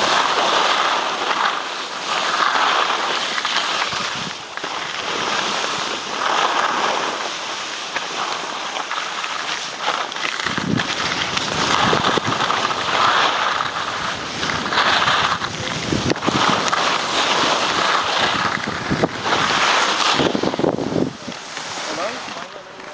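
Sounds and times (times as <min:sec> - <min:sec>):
skis scraping over snow: 0:00.0 - 0:22.9
wind on microphone: 0:03.9 - 0:04.5, 0:10.4 - 0:22.3.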